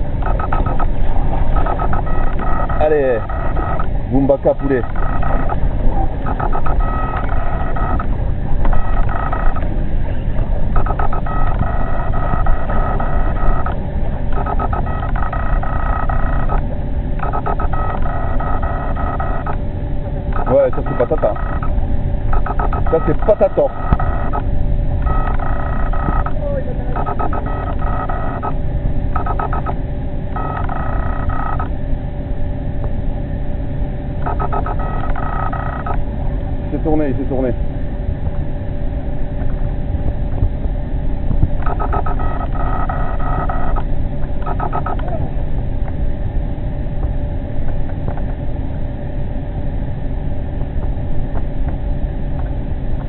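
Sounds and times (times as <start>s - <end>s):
steady low rumble: 0.0s - 53.0s.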